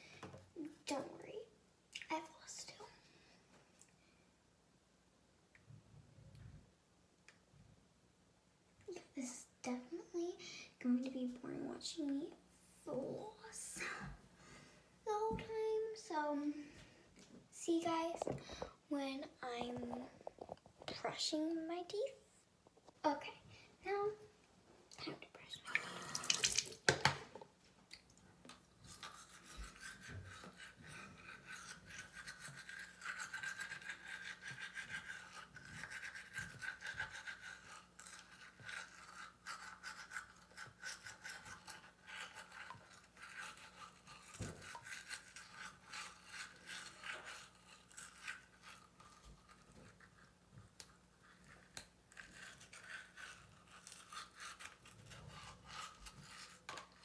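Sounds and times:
toothbrush scrubbing teeth: 25.6 - 26.9, 28.0 - 57.0.

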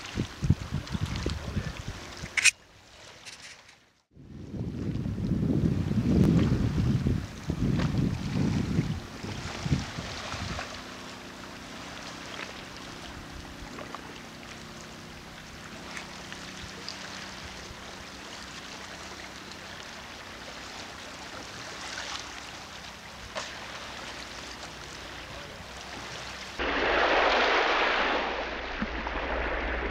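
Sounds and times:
water lapping around a boat: 0.0 - 29.9
loud rushing noise: 26.6 - 29.9.

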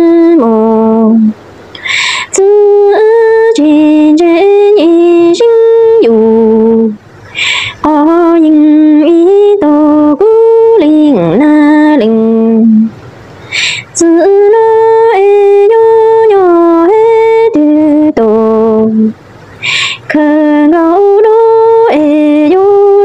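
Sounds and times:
woman singing unaccompanied: 0.0 - 23.0
sharp breath: 1.7 - 2.3, 7.3 - 7.8, 13.4 - 13.9, 19.6 - 20.1.

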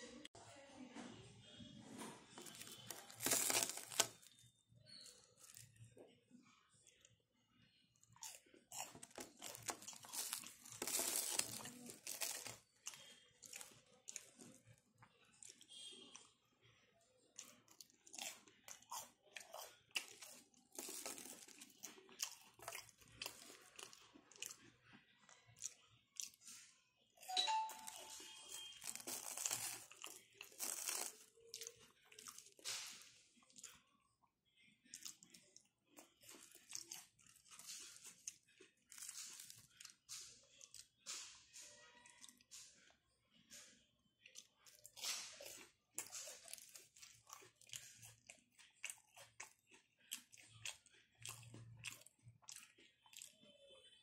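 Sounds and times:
chewing crunchy food: 2.0 - 7.2, 7.9 - 54.0.

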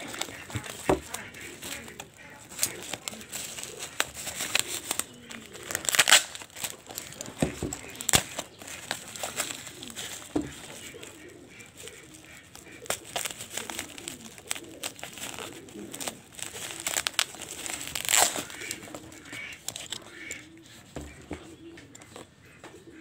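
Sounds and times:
box cutter slitting plastic: 0.0 - 10.7
plastic wrap crinkling: 0.0 - 22.2
box knocking: 7.4 - 8.4.

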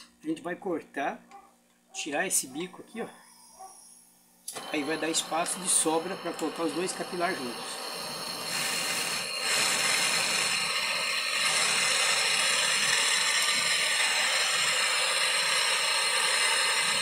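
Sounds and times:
gas torch hissing: 3.4 - 17.0.

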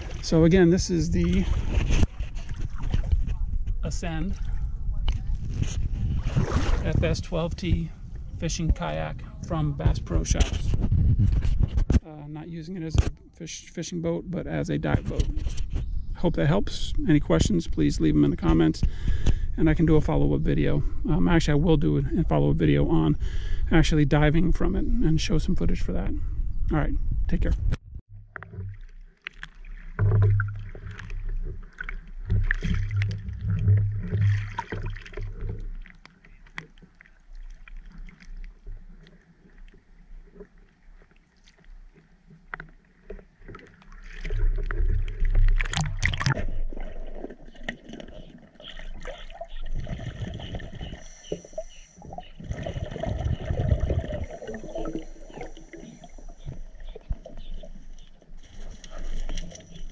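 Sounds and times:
water sloshing: 0.0 - 11.7, 28.1 - 59.9
wind buffeting camera: 1.1 - 12.0, 14.8 - 21.4, 52.2 - 54.6
muffled underwater high tones: 46.1 - 59.9.

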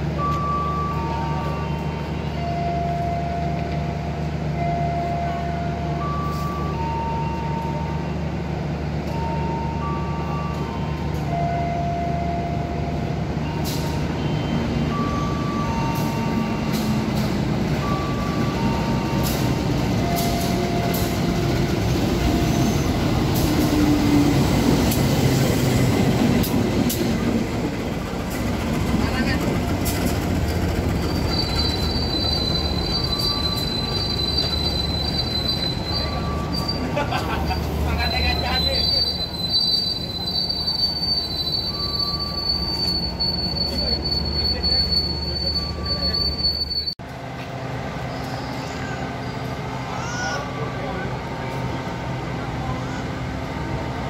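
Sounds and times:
low train engine hum: 0.0 - 54.0
train wheels clicking over rail joints: 26.2 - 35.8.

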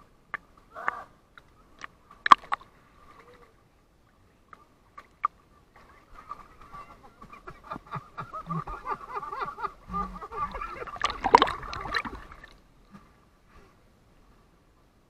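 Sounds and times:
water sloshing and splashing: 1.8 - 3.5, 10.0 - 12.7.

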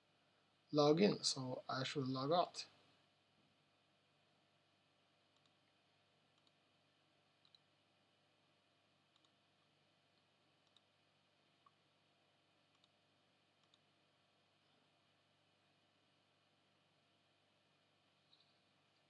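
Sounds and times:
faint computer mouse clicks: 5.3 - 5.6, 6.3 - 6.6, 7.4 - 7.7, 9.1 - 9.4, 10.2 - 10.9, 12.7 - 13.0, 13.6 - 13.9.

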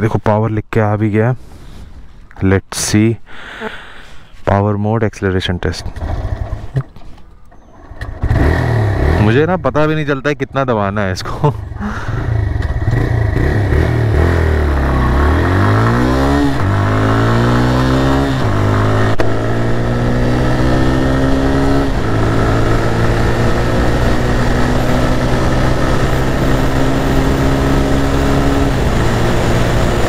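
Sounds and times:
motorcycle engine revving through gears: 5.8 - 9.5, 12.0 - 30.0.

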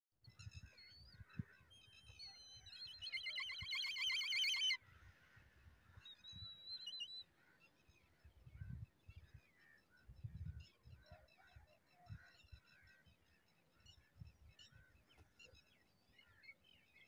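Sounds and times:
young birds of prey whistling: 2.2 - 4.8, 6.3 - 7.2.

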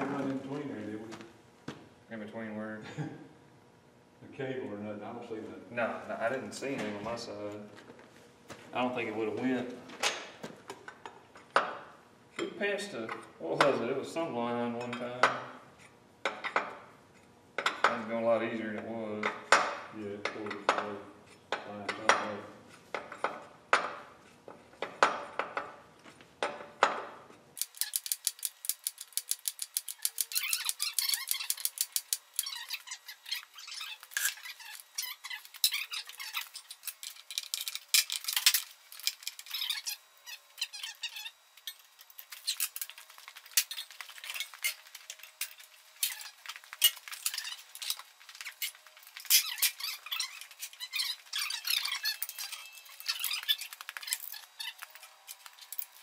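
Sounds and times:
wrench clicking on bolts: 27.6 - 32.8.

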